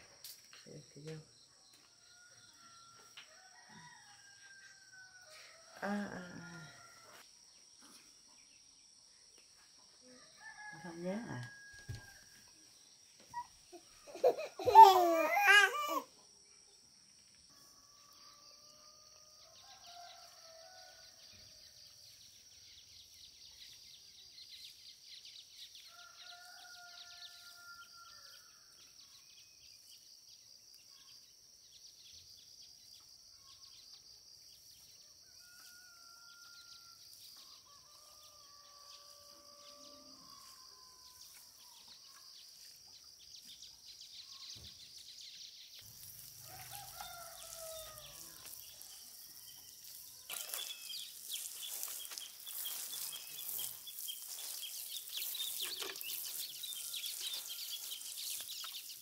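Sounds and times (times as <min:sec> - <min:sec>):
insects droning: 0:00.0 - 0:59.0
baby crying: 0:13.4 - 0:16.1.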